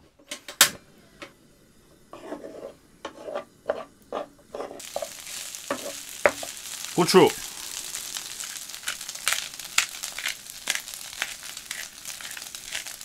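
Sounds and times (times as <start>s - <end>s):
steady sizzle: 0.2s - 13.0s
spatula scraping pan: 2.1s - 6.5s, 8.9s - 13.0s.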